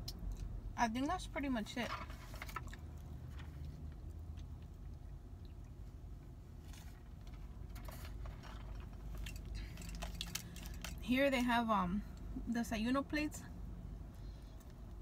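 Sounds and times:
low hum inside a car: 0.0 - 15.0
chewing food: 2.4 - 7.3.

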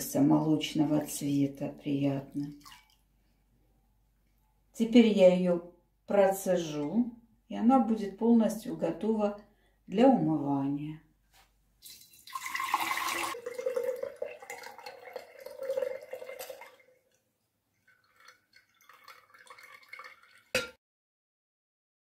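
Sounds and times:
water pouring into glass jar: 0.6 - 3.0, 11.8 - 20.8
water trickling: 0.8 - 3.1, 11.8 - 20.8
glass jar ringing: 20.6 - 20.8.

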